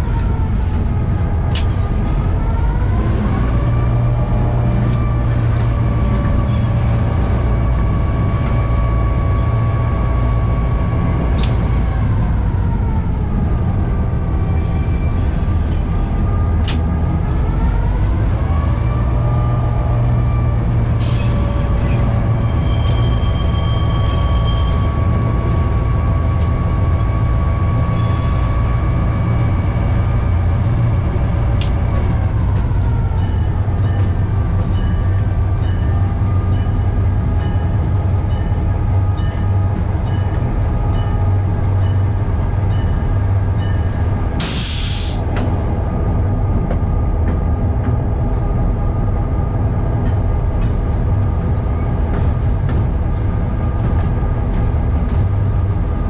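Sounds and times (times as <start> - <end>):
diesel locomotive engine running: 0.0 - 56.0
brief high squeals: 0.6 - 2.4, 11.4 - 12.4.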